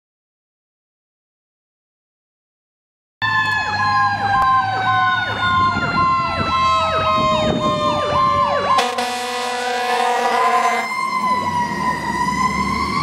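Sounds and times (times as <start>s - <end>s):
fire engine siren yelp: 3.2s - 13.0s
siren tone sliding down: 3.2s - 13.0s
air horn blast: 8.8s - 10.9s.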